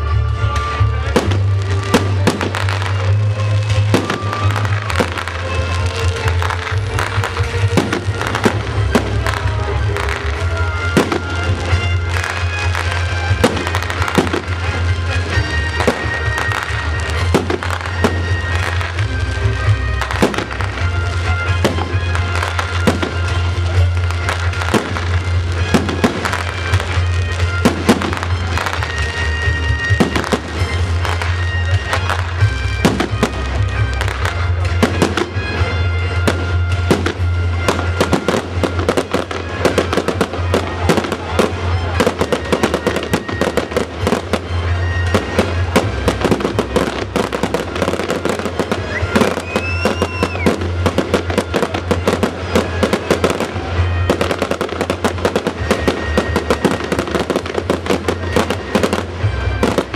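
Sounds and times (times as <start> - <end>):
fireworks bursting: 0.0 - 59.9
music: 0.0 - 59.9.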